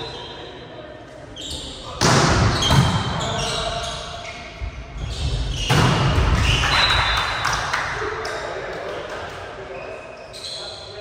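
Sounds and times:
volleyball hits and thuds: 2.0s - 3.2s.

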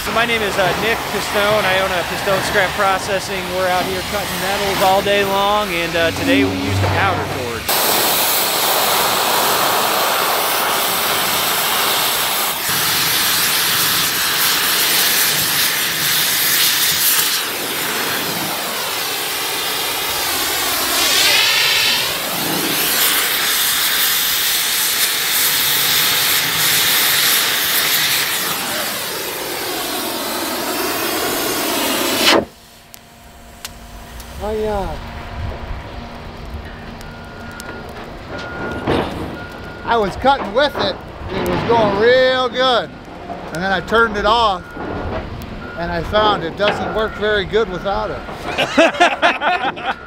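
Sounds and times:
cutting torch hissing: 0.0s - 35.0s, 45.8s - 50.0s.

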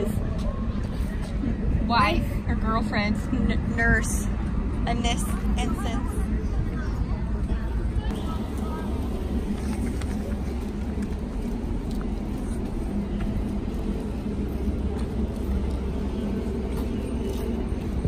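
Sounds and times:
faint steady hum: 0.0s - 18.0s
low outdoor rumble: 0.0s - 18.0s.

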